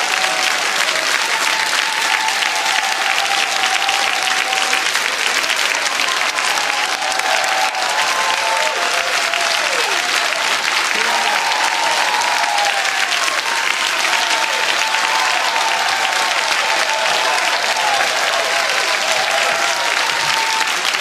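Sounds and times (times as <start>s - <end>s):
audience clapping: 0.0s - 21.0s
people calling out and whooping: 5.8s - 20.8s.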